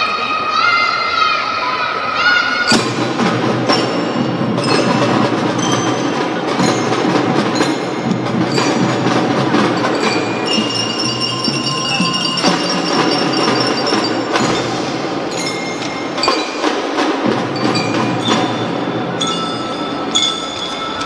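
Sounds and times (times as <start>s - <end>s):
marching drums: 2.7s - 20.4s
glockenspiels ringing a melody: 3.7s - 16.9s, 17.5s - 21.0s.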